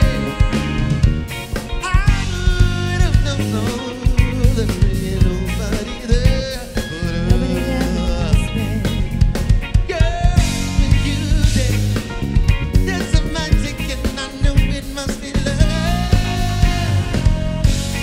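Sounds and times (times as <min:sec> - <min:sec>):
person singing: 0:00.0 - 0:12.2, 0:12.8 - 0:18.0
live rock band playing: 0:00.0 - 0:18.0.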